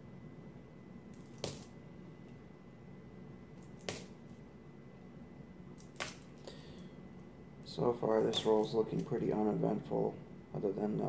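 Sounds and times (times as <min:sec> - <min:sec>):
coins clinking: 0:01.2 - 0:01.7.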